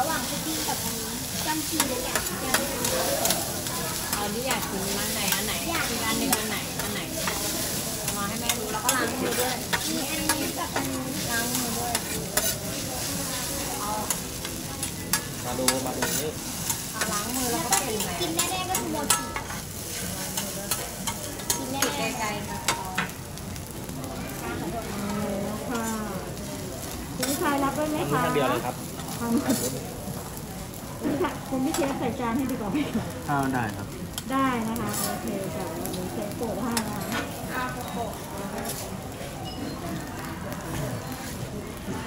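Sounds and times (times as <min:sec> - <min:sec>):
food sizzling on a griddle: 0:00.0 - 0:42.0.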